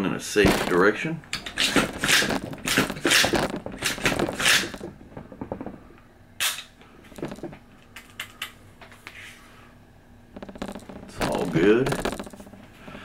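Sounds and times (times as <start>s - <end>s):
rifle handling rustle: 0.5s - 4.9s.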